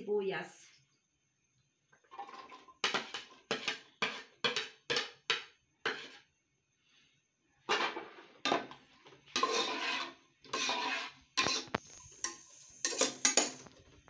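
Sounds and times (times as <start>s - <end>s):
metal skimmer scraping pot: 7.7s - 13.8s.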